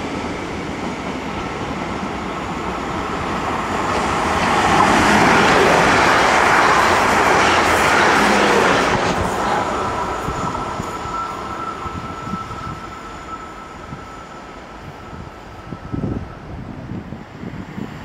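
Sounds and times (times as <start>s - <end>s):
train passing at speed: 0.0s - 18.0s
thin steady whine: 4.4s - 17.0s.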